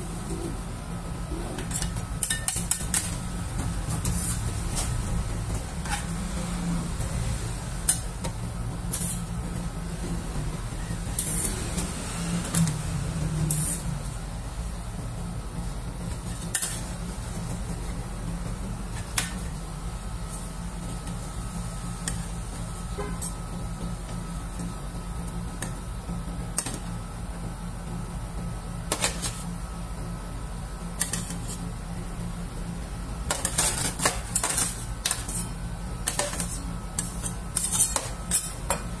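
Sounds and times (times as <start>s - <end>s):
low machine hum: 0.0s - 39.0s
spatula scraping metal plate: 36.1s - 38.6s.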